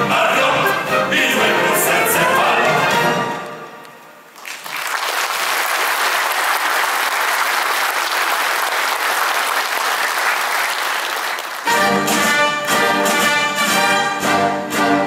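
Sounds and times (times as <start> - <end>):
audience applauding: 4.3 - 11.9.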